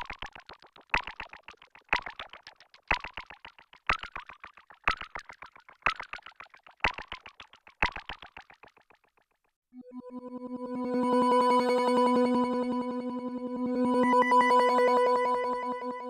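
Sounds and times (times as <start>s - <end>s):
synthesizer plucky arpeggio: 0.0s - 9.0s.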